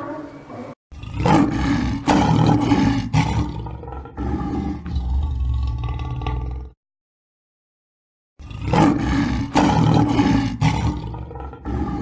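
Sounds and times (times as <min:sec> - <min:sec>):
tiger growling and roaring: 0:01.0 - 0:06.8, 0:08.4 - 0:12.0.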